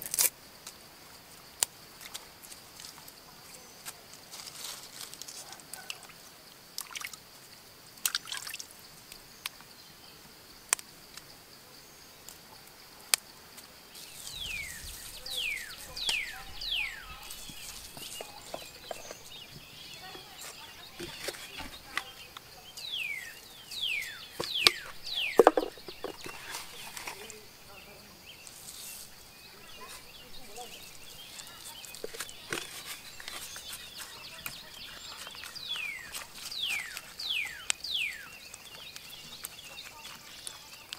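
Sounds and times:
small taps and clicks: 24.4s - 26.4s.

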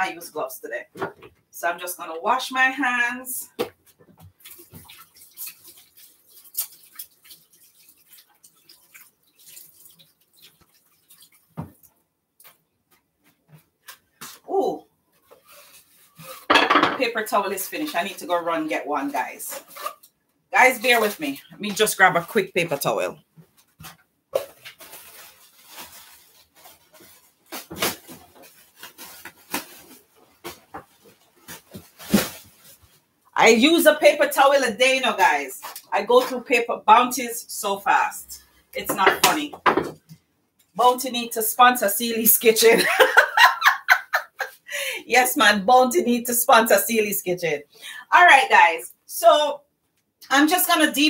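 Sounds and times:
tap water splashing: 3.6s - 12.6s.

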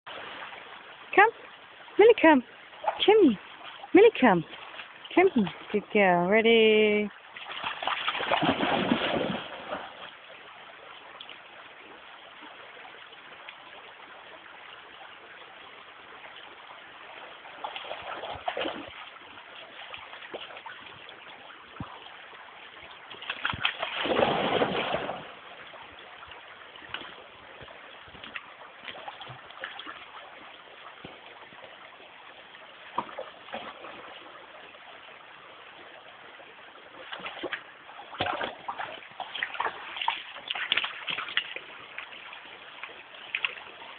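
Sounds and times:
running water: 0.1s - 43.9s
dog splashing in water: 7.4s - 10.1s, 23.2s - 25.4s, 37.0s - 41.7s.

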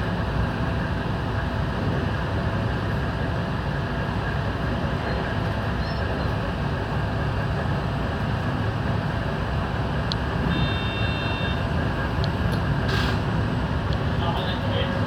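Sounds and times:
train wheels and motors rumbling: 0.0s - 15.0s
brief high tone: 10.5s - 11.6s
short hiss: 12.9s - 13.3s.

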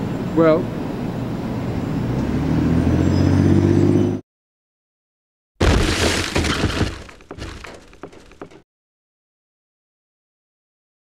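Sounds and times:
pieces clattering down: 5.6s - 8.3s
stone shattering crash: 5.6s - 8.3s.

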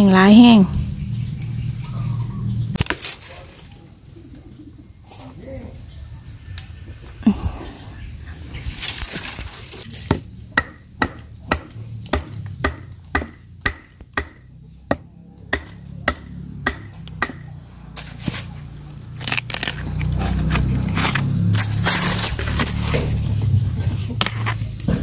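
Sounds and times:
blade chopping bamboo: 2.8s - 3.2s, 9.8s - 23.2s.

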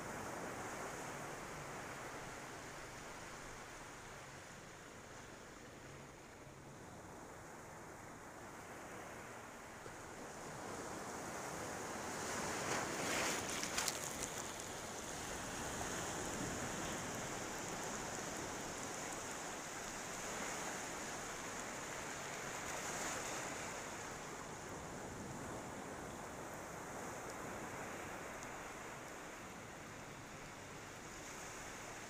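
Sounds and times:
surf washing onto beach: 10.0s - 32.0s.

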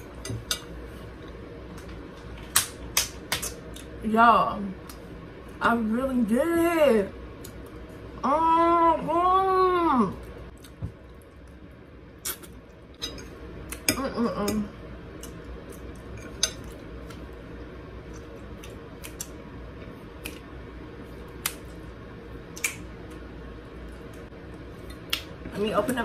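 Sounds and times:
steady low hum: 0.0s - 26.0s
fork clinking on a plate: 13.0s - 13.3s.

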